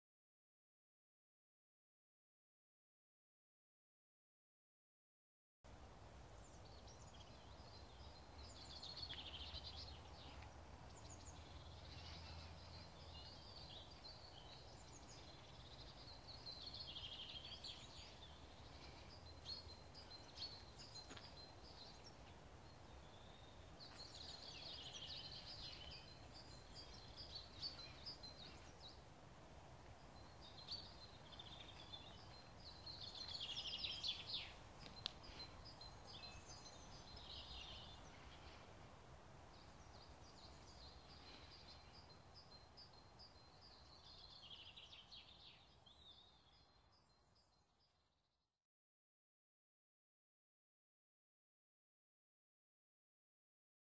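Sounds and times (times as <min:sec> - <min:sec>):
faint outdoor hiss: 0:05.7 - 0:48.5
small birds chirping and trilling: 0:06.2 - 0:48.1.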